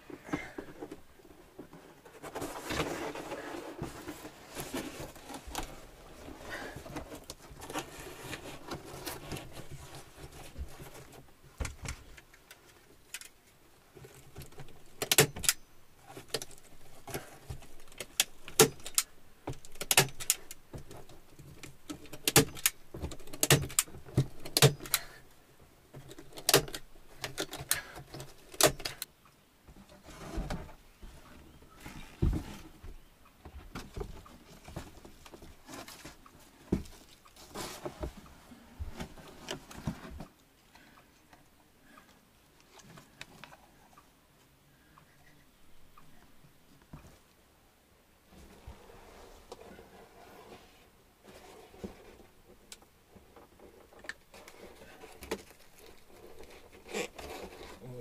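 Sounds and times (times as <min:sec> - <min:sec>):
birch bark rustling and crackling: 0:11.9 - 0:25.2, 0:53.6 - 0:58.0
sharp irregular clicks and knocks: 0:14.0 - 0:25.3, 0:25.9 - 0:29.1.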